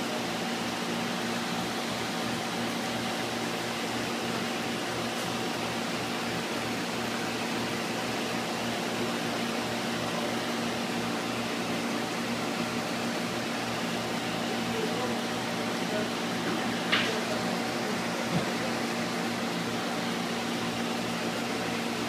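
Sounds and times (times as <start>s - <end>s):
aquarium pumps humming and hissing: 0.0s - 22.0s.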